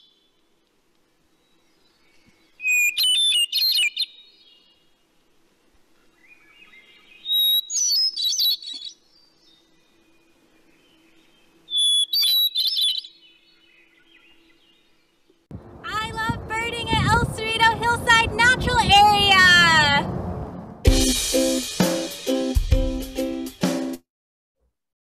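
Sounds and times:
thrush singing flute-like phrases: 15.9s - 20.1s.

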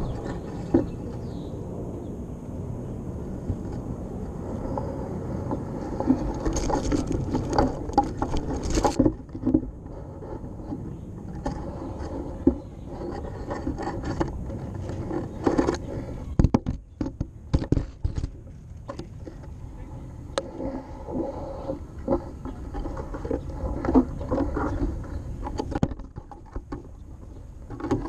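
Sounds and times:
low rumble: 0.0s - 16.4s.

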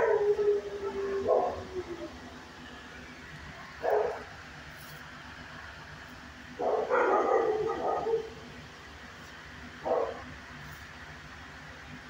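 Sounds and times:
dog barking: 1.2s - 1.6s, 3.8s - 4.3s, 6.6s - 8.4s, 9.8s - 10.3s.

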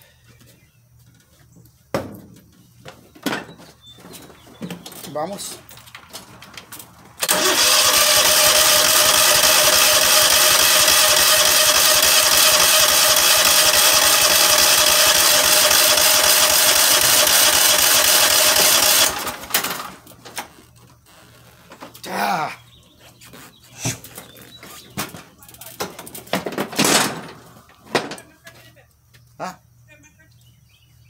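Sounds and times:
electric starter cranking engine: 7.2s - 21.4s.

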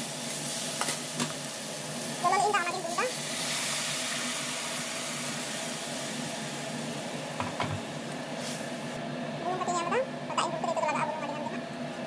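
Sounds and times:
water sizzling in hot pan: 0.0s - 9.0s.

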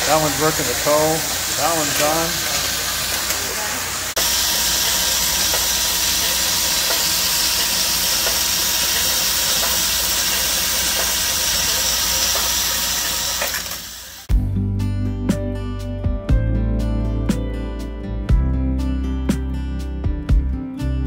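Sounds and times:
knitting machine whirring: 4.2s - 14.3s.

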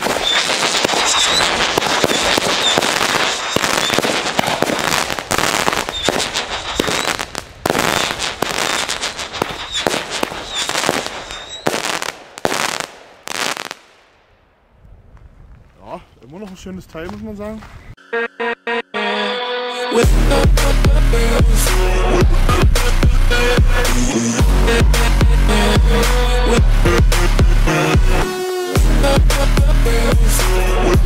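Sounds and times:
firework shots firing: 0.0s - 14.6s
dense crackling of fireworks: 0.0s - 15.3s.

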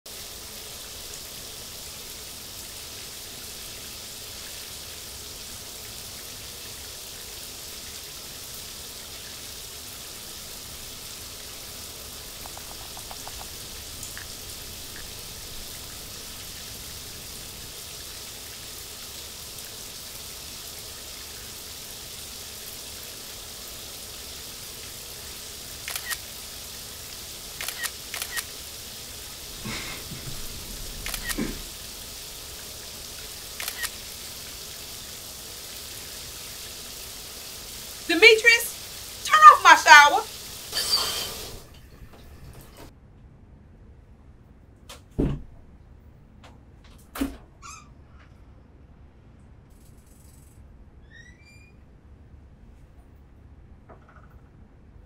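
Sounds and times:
shower water spraying: 0.1s - 42.9s
sharp clicks: 12.4s - 13.6s, 25.9s - 26.2s, 27.6s - 28.5s.

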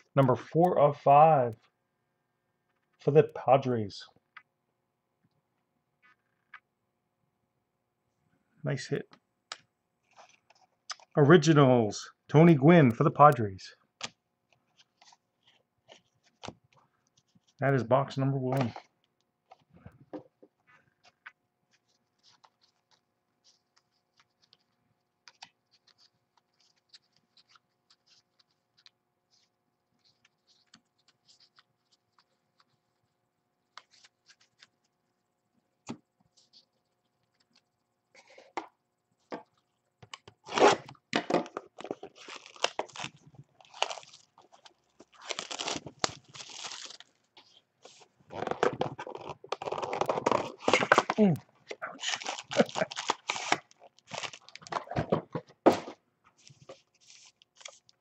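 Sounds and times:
plastic wrap tearing and crinkling: 40.4s - 54.9s.

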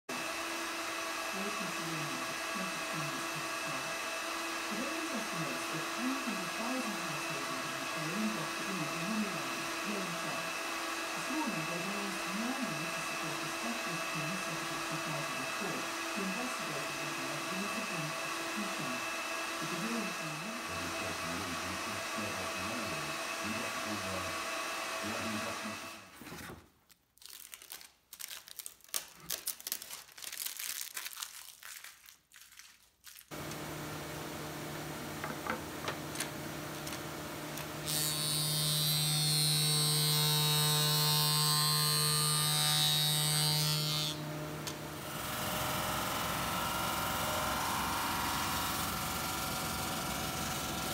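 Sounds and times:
jointer humming: 0.1s - 26.1s, 33.3s - 50.9s
jointer cutting wood: 0.1s - 26.2s, 33.3s - 50.9s.

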